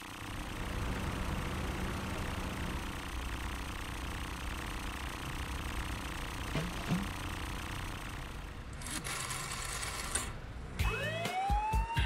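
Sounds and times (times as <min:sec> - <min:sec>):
cartoon vehicle engine humming: 0:00.0 - 0:12.0
rotary telephone dial whirring: 0:07.1 - 0:10.4
low pulses and rising electronic tones: 0:10.8 - 0:12.0.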